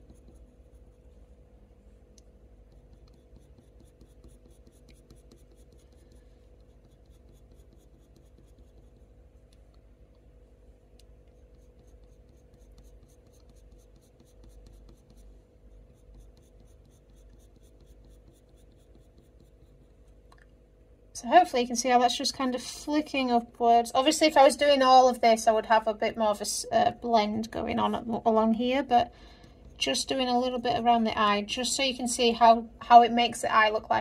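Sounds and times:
pencil scratching on paper: 0.0s - 1.3s, 2.6s - 9.8s, 11.2s - 20.3s, 28.8s - 30.4s.

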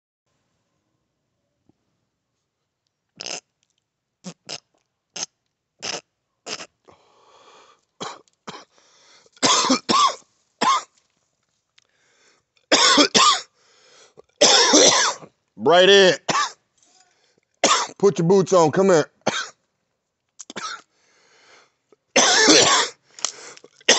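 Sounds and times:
short harsh coughs: 8.0s - 8.7s, 9.4s - 10.9s, 12.7s - 13.5s, 14.4s - 15.3s, 16.3s - 16.6s, 17.6s - 18.0s, 19.2s - 19.6s, 20.4s - 20.9s, 22.2s - 23.0s.

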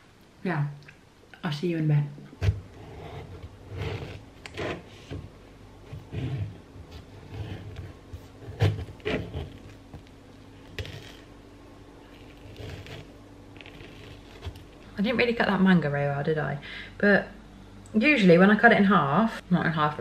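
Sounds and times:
knife cutting on chopping board: 2.4s - 5.2s, 5.9s - 9.8s, 10.7s - 11.3s, 12.1s - 14.6s.

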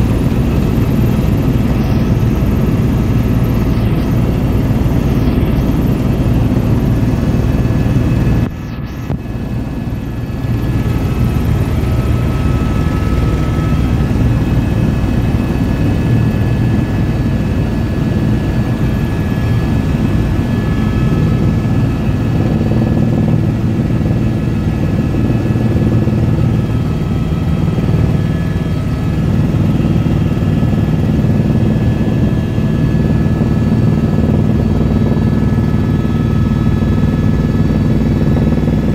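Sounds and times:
helicopter rotor and engine drone: 0.0s - 38.9s.

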